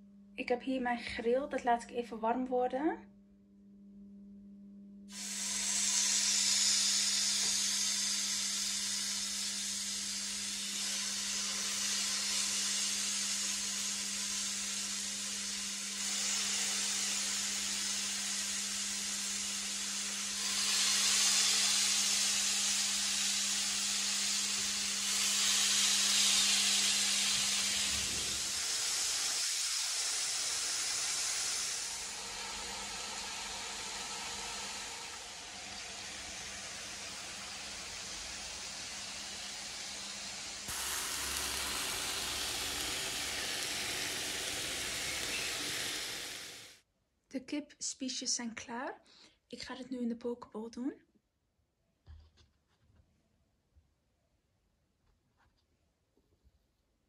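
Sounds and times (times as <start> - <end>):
steady low hum: 3.0 - 14.9
chicken sizzling on a grill: 5.2 - 46.8.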